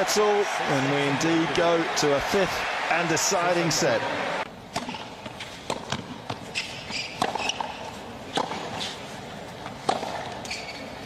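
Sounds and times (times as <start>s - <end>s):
crowd background: 0.0s - 4.5s
rackets striking tennis ball: 4.7s - 9.0s, 9.7s - 10.7s.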